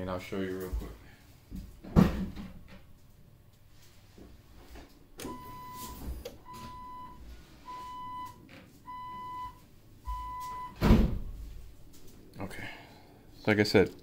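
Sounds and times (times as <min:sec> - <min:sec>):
electronic beeps: 0:05.3 - 0:10.8.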